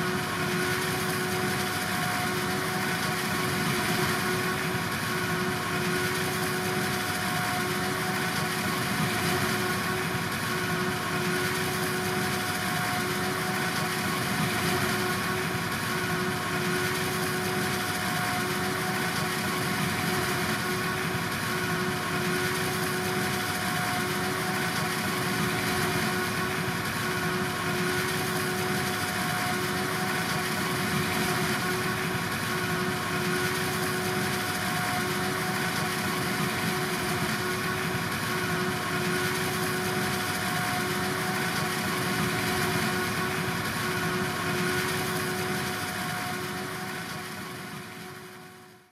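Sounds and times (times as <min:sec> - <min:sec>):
farm machinery engine running: 0:00.0 - 0:48.9.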